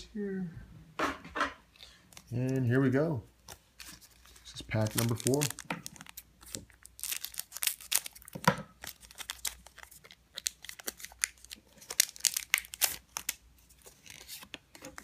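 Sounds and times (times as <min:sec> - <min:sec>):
foil wrapper crinkling: 0:03.4 - 0:15.0.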